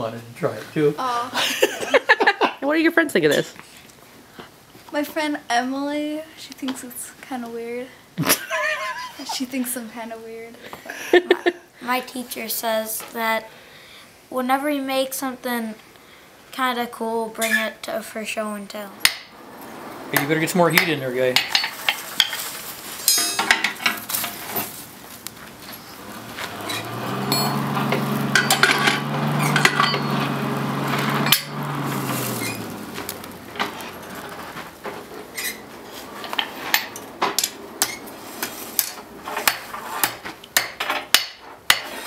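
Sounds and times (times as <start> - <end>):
hammer striking iron on anvil: 23.1 - 23.8, 40.6 - 41.9
forge blower humming: 23.5 - 40.2.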